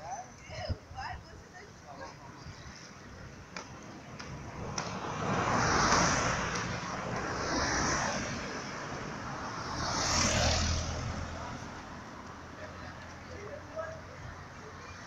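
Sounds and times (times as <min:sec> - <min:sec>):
vehicle passing: 0:03.8 - 0:14.7.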